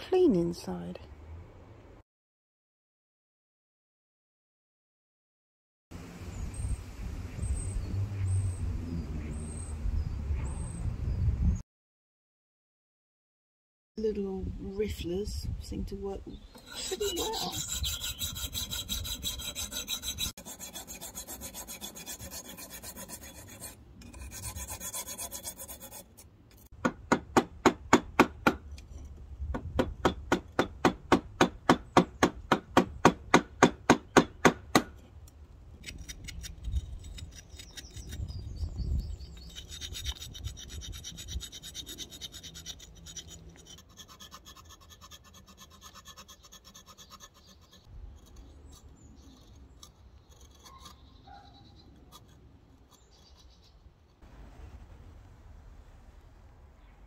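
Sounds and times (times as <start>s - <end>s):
tool scraping brick: 16.6s - 26.8s, 39.2s - 54.2s
file rasping on brick: 16.6s - 28.6s, 39.2s - 54.2s.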